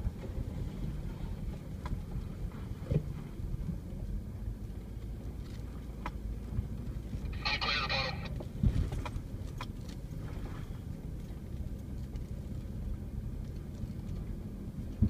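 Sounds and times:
vehicle engine rumbling: 0.0s - 15.0s.

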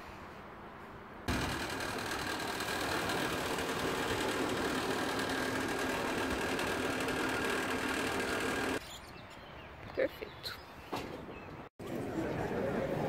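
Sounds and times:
fuel pump humming: 1.3s - 8.8s.

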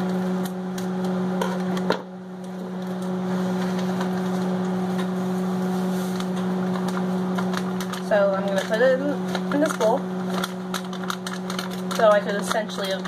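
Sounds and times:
microwave oven humming: 0.0s - 13.0s
scissors cutting paper bag: 6.7s - 13.0s.

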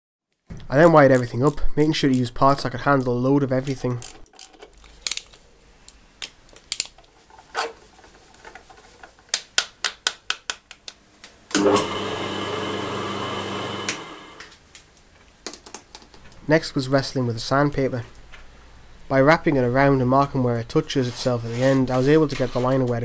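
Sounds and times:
electric motor running: 11.6s - 14.5s.

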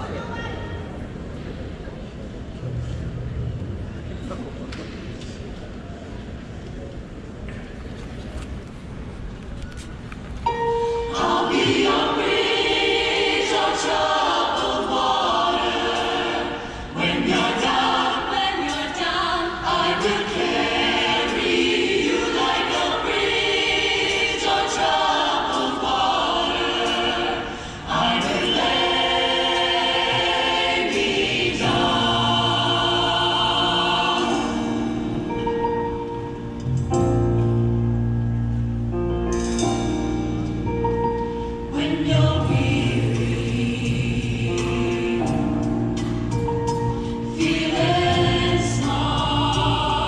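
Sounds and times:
choir singing: 10.6s - 36.5s, 41.7s - 50.0s.

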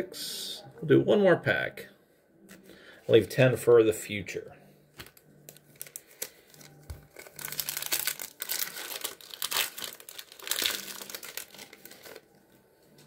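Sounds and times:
plastic wrapper crinkling: 5.0s - 13.0s.

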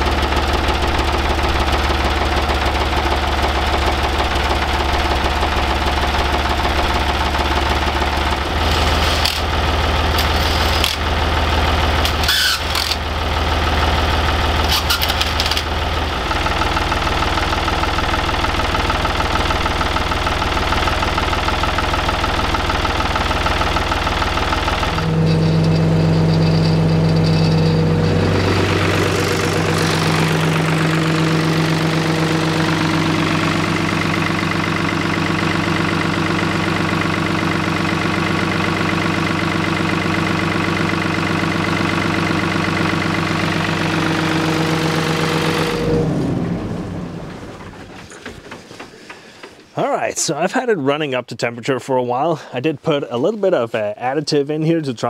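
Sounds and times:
engine knocks: 0.0s - 49.8s
diesel engine idling: 0.0s - 50.0s.

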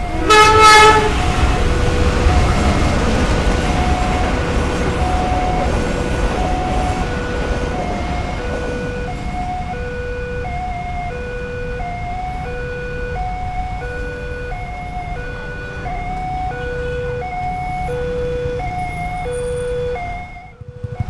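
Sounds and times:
level-crossing warning alarm: 0.0s - 21.0s
idling motorcycle and car engines: 13.3s - 21.0s.

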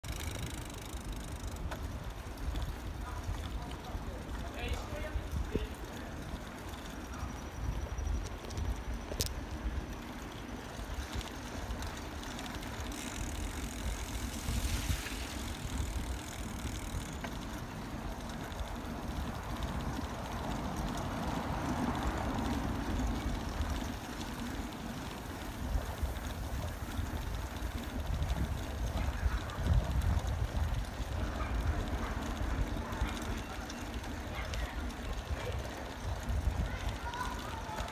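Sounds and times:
faint road noise: 0.0s - 37.9s
wind buffeting microphone: 10.6s - 24.4s, 25.1s - 37.9s.

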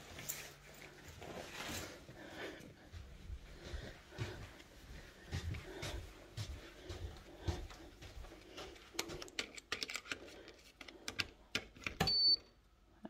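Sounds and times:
soft footsteps: 0.0s - 9.4s.

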